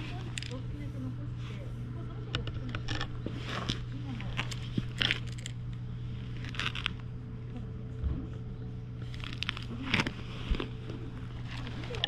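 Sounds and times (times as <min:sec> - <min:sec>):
low hum: 0:00.0 - 0:12.0
hand stroking cat fur: 0:09.7 - 0:12.0.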